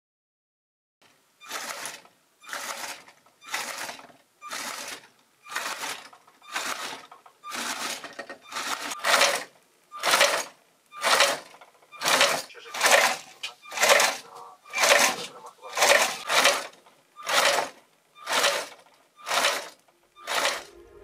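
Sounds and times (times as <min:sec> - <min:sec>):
toy motor and gears whirring: 0:01.4 - 0:20.7.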